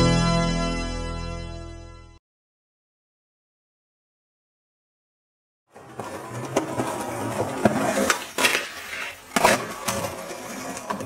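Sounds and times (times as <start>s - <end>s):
skateboard clacks: 5.7s - 11.0s
skateboard grinding stone ledge: 5.7s - 11.0s
skateboard wheels rolling: 5.7s - 11.0s.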